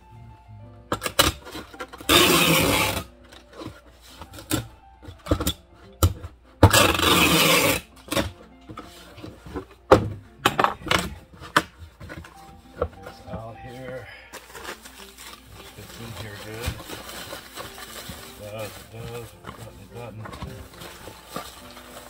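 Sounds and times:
packing tape screeching off tape gun: 1.0 - 3.1, 6.6 - 8.3, 14.4 - 19.8
knocks and clicks of box: 8.0 - 13.4.

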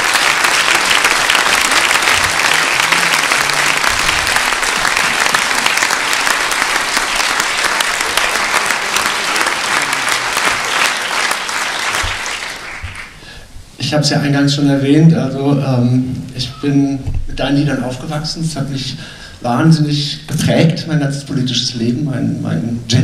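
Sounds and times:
large audience applauding: 0.0 - 13.4.

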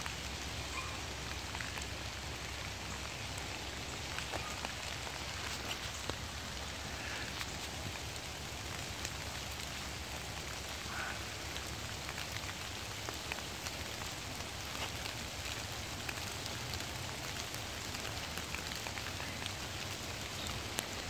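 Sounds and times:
rain falling on foliage: 0.0 - 21.0.

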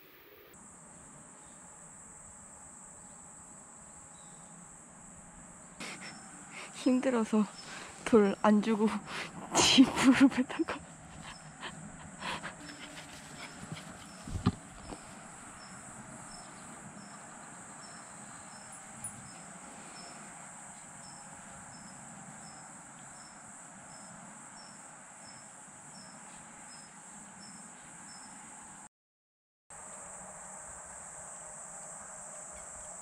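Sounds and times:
crickets chirping: 0.0 - 28.9, 29.7 - 33.0
close knocks and rustles: 12.6 - 15.2.

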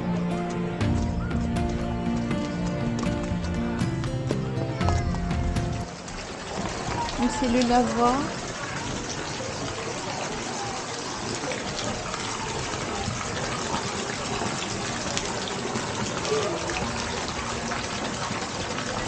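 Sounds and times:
running water in stone basin: 0.0 - 19.0
faint voices: 3.8 - 19.0.

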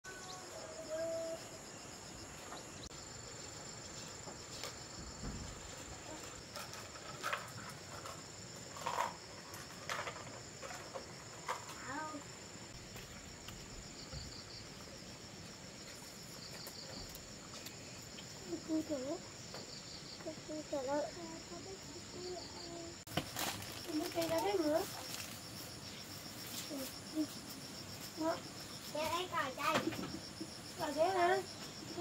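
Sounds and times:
insects chirring: 0.0 - 32.0.

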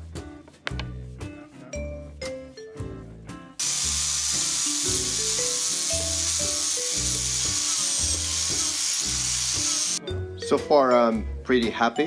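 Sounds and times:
background melodic music: 0.0 - 12.0
angle grinder grinding metal: 3.6 - 10.0.

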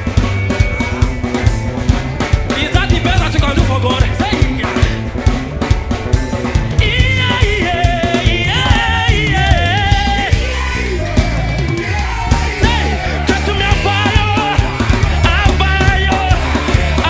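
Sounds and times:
gospel band music: 0.0 - 17.0
male singer: 2.5 - 5.1, 6.8 - 17.0.

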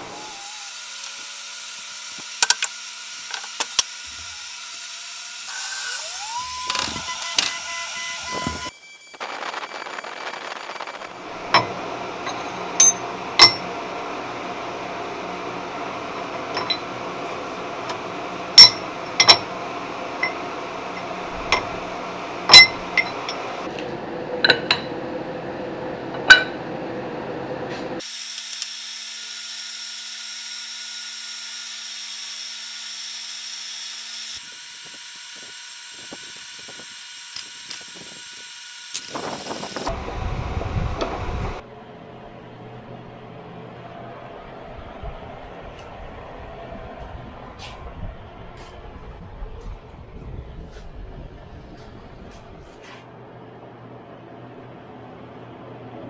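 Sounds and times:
steady machine hum: 5.4 - 28.0, 35.7 - 56.0
higher steady machine noise: 5.4 - 28.1, 35.7 - 56.0
metal clinks on vise: 18.6 - 19.5.

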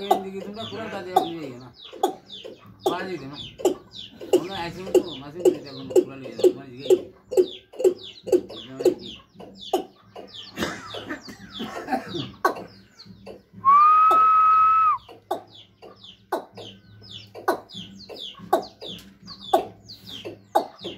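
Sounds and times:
loud steady whistle: 13.6 - 15.0
bird calling falling notes: 13.6 - 15.1.

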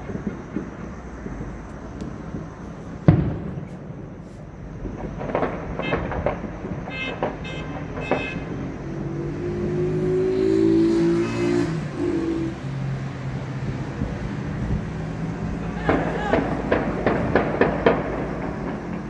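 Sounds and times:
scattered cracks: 4.8 - 8.5, 15.8 - 19.0
short horn blasts: 5.8 - 6.1, 6.9 - 8.6, 11.0 - 12.5
car horns honking: 5.8 - 9.0, 10.9 - 12.5.

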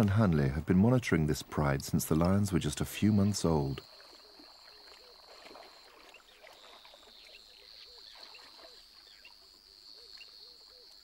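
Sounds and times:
insect trill: 2.5 - 11.0
frog calls: 3.6 - 11.0.

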